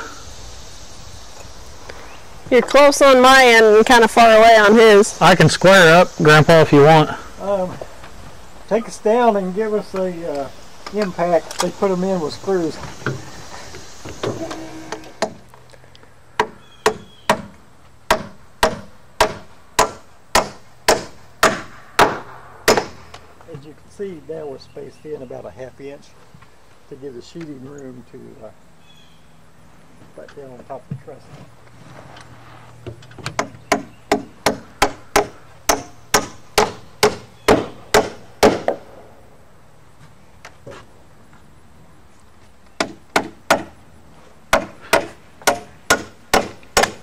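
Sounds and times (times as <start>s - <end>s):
hammer hitting nail into wood: 18.1s - 23.0s, 33.4s - 38.8s, 42.8s - 43.7s, 44.5s - 47.0s.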